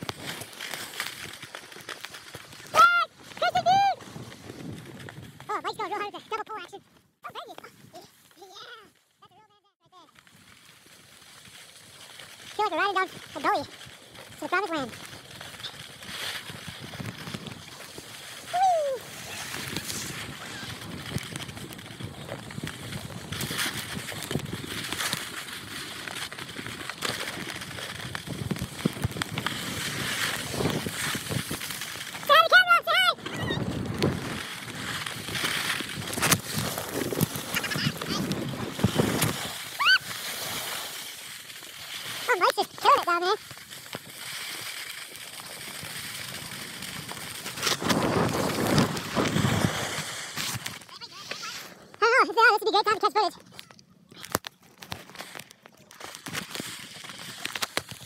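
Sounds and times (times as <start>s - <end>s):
skis scraping over snow: 0.0s - 9.0s, 10.0s - 53.4s, 54.3s - 58.0s
wind on microphone: 33.2s - 39.9s.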